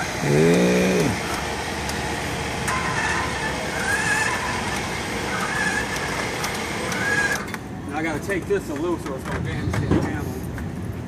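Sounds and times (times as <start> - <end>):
outdoor background rumble: 0.0 - 11.0
man's wordless vocal sound: 0.2 - 1.2.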